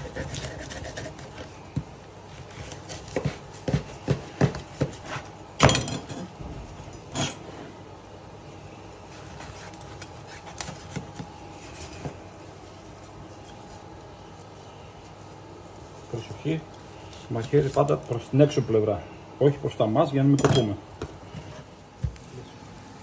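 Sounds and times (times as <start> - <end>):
knife chopping through fish bone: 2.5 - 5.2.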